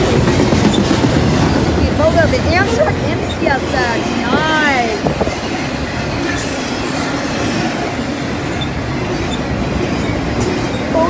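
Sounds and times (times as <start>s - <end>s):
freight train wheels rumbling on rails: 0.0s - 11.0s.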